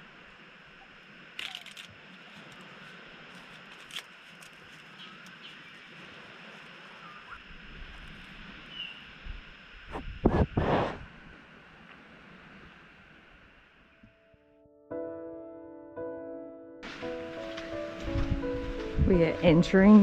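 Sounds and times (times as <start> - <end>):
leaves crackling: 0.0 - 9.2, 16.8 - 20.0
bush ambience: 0.0 - 14.1, 16.8 - 20.0
kangaroo chewing leaves: 1.4 - 7.2.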